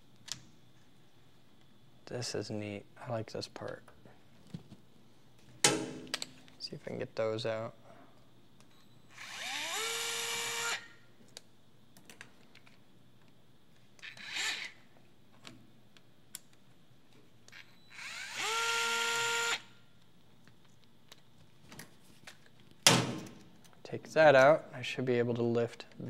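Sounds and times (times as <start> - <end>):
electric screwdriver spinning: 9.2 - 10.8, 18.0 - 19.6.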